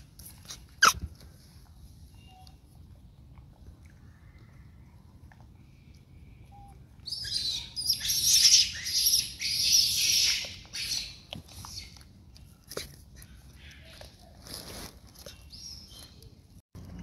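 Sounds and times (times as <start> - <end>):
baby monkey squealing: 0.4 - 1.0, 7.1 - 12.0.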